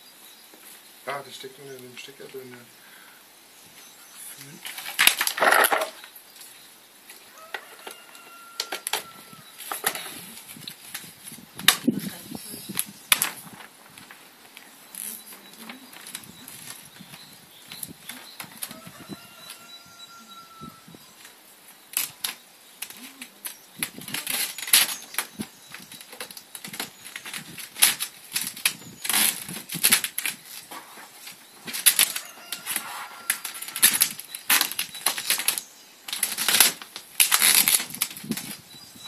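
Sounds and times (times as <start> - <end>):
vinyl film crackling and rustling: 4.6 - 19.7, 21.2 - 38.7.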